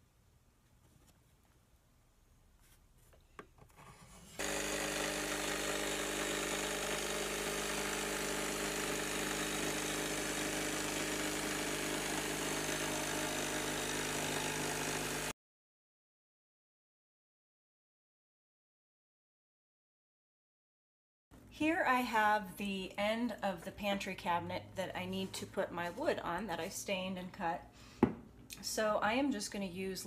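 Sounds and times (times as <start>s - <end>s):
electric jigsaw cutting wood: 4.1s - 15.4s.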